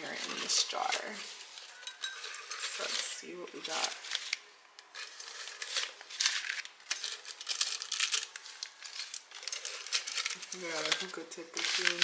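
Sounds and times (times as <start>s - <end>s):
paper banknotes rustling: 2.6s - 12.0s.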